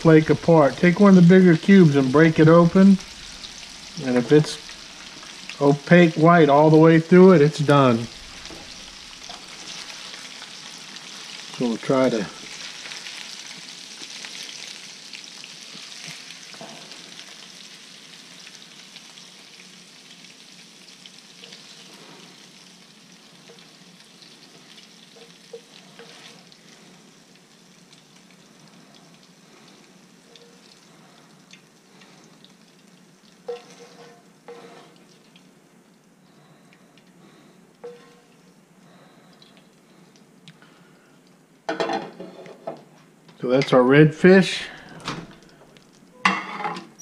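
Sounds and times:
fish sizzling in oil: 0.0 - 42.6
spatula tapping and scraping pan: 33.5 - 35.0.

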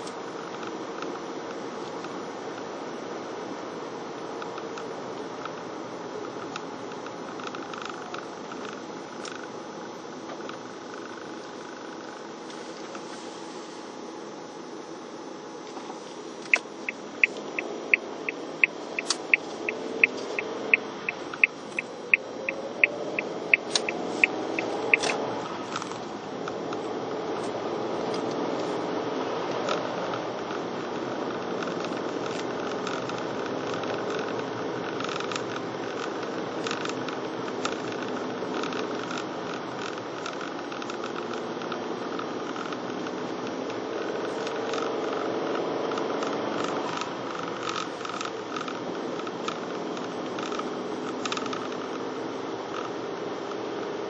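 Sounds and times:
car engine revving: 15.8 - 54.0
turn signal ticking: 16.4 - 28.4, 29.5 - 53.8.

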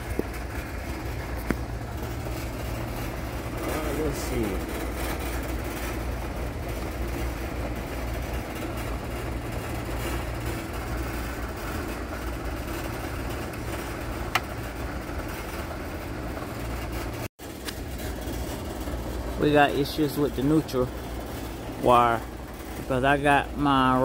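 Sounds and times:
hvac equipment humming: 0.0 - 24.0.

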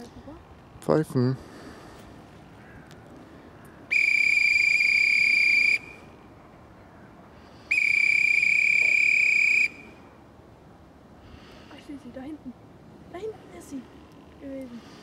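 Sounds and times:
dog whistle blasts: 3.9 - 6.1, 7.7 - 10.0.

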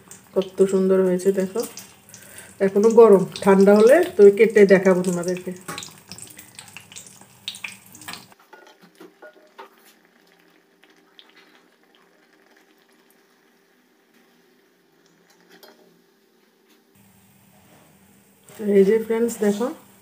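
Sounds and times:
batter sizzling in hot oil: 0.0 - 8.4, 17.0 - 20.0.

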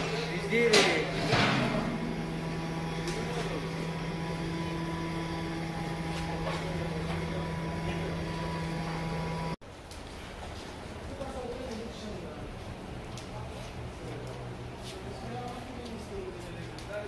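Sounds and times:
low machine hum: 0.0 - 9.6.

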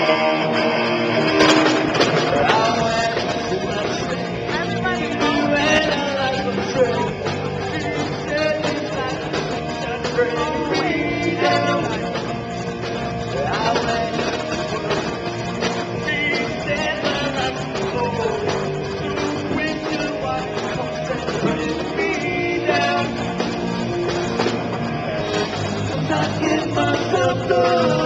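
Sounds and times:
bass guitar: 0.0 - 28.0
drums: 0.0 - 28.0
electric guitar: 0.0 - 28.0
man singing: 1.5 - 12.4, 13.2 - 14.9, 15.7 - 23.5, 25.9 - 28.0.

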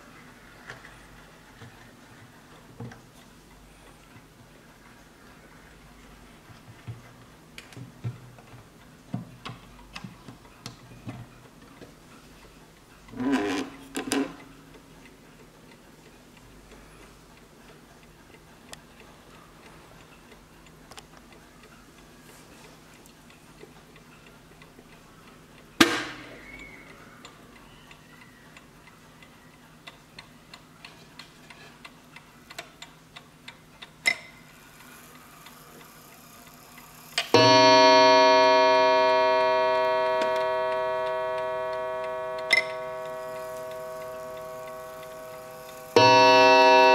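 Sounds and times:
clock gong ringing: 37.3 - 46.9
clock ticking: 37.3 - 46.9.

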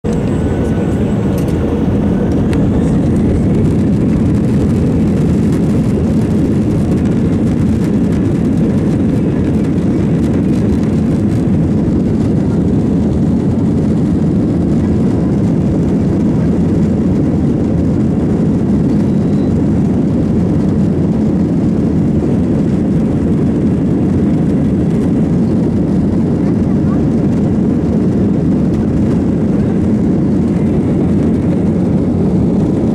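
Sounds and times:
jet engines rumbling in cabin: 0.0 - 32.9
wheels rumbling on runway: 0.0 - 32.9.

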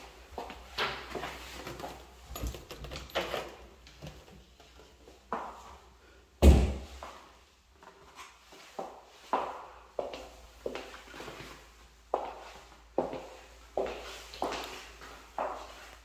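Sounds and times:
loud deep thump: 6.4 - 6.9
footsteps on hard floor: 6.8 - 16.0.

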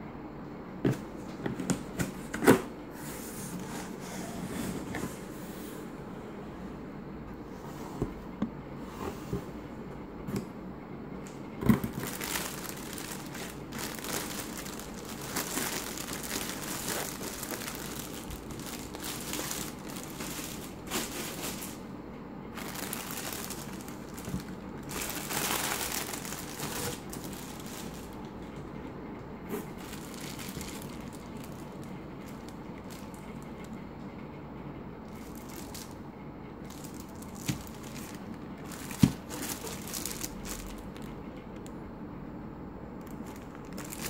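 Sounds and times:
plastic packing crinkling: 11.6 - 21.8, 22.5 - 28.6, 29.5 - 33.7, 35.0 - 36.0, 36.6 - 41.7, 43.0 - 44.0.

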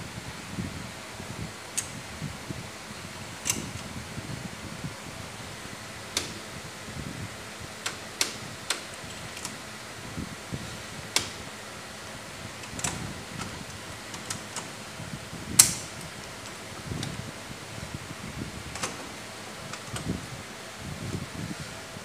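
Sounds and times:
circuit breaker racking clicks and knocks: 3.4 - 3.9, 6.1 - 6.4, 7.8 - 9.6, 11.1 - 11.5, 12.6 - 14.8, 15.6 - 17.2, 18.7 - 20.2.

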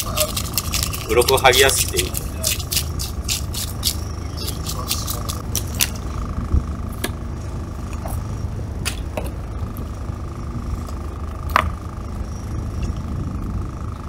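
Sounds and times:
boat low rumble: 0.0 - 14.0
thin steady whine: 0.0 - 14.0.

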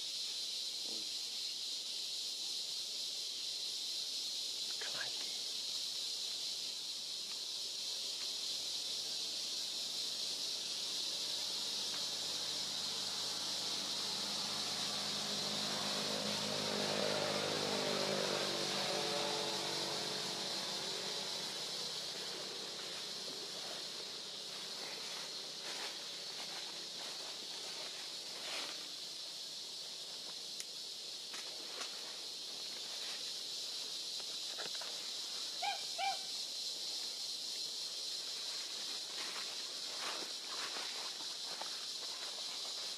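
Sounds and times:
shrill insect chorus: 0.0 - 42.9
passing vehicle engine hum: 11.6 - 23.5.

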